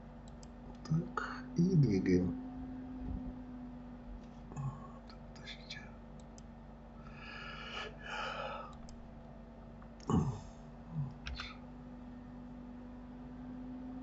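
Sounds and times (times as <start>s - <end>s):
steady low hum: 0.0s - 14.0s
computer mouse clicks: 0.2s - 0.8s, 6.2s - 6.5s, 8.7s - 9.1s, 11.2s - 11.6s
soft breath: 7.0s - 8.8s.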